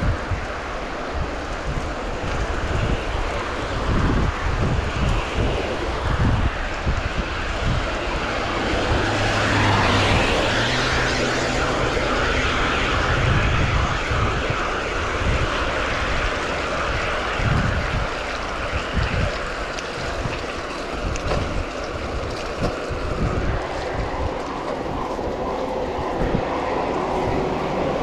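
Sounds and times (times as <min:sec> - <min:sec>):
low engine drone: 0:00.0 - 0:28.0
tyre spray on wet road: 0:00.0 - 0:28.0
wind on microphone: 0:00.0 - 0:28.0.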